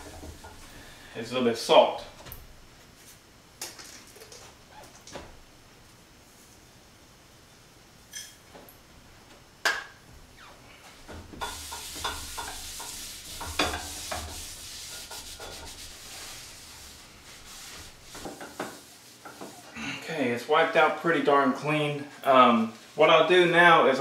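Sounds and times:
paper towel scrubbing skillet: 11.4s - 19.7s.

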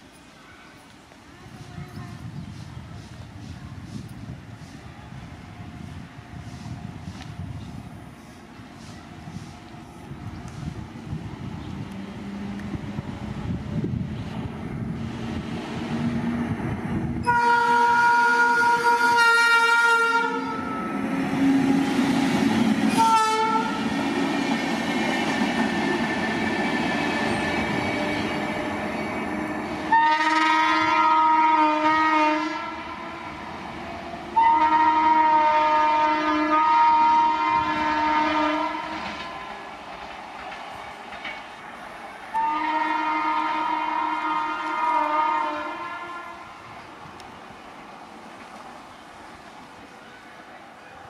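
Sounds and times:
train rushing and clattering past: 0.0s - 51.0s
train air horn blasts: 17.2s - 22.1s, 22.9s - 24.0s, 29.8s - 33.4s, 34.4s - 39.5s, 42.3s - 46.6s.

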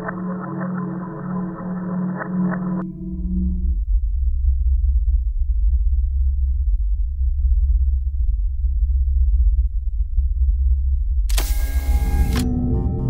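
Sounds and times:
deep bass drone: 2.8s - 13.0s.

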